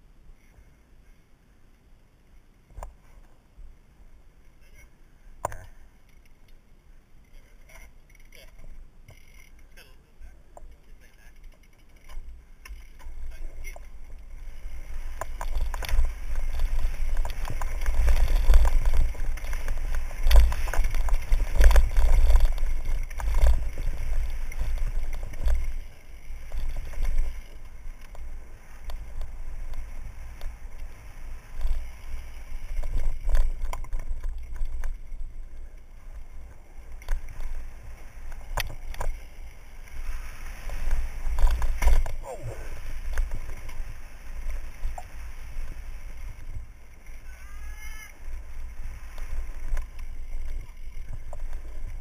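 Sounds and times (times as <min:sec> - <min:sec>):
bike knocking and rattling: 0:10.6 - 0:42.2, 0:42.8 - 0:52.0
tyres crunching over leaves and dirt: 0:13.0 - 0:52.0.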